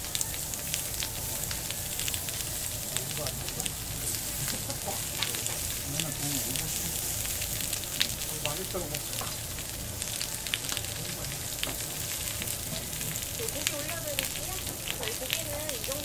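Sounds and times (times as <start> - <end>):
fat crackling and popping: 0.0 - 16.0
meat sizzling on grill pan: 0.0 - 16.0.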